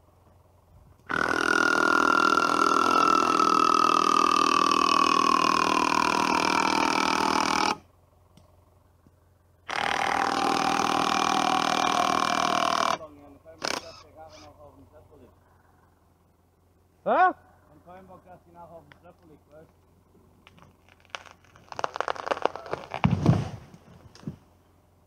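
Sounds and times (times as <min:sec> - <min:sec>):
small engine whining at high revs: 0:01.0 - 0:07.9, 0:09.6 - 0:14.5.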